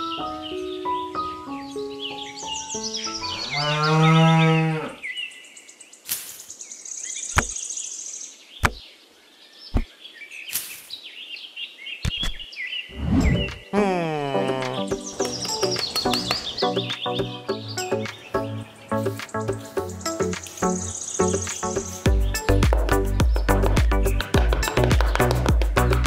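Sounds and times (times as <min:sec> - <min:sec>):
cow mooing: 0:03.2 - 0:05.0
bird chirps: 0:05.0 - 0:13.7, 0:14.7 - 0:24.3.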